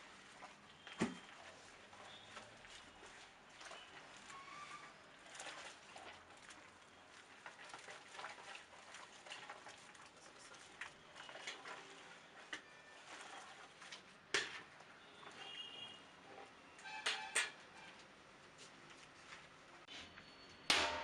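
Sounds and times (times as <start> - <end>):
sharp knock: 20.7 - 21.0.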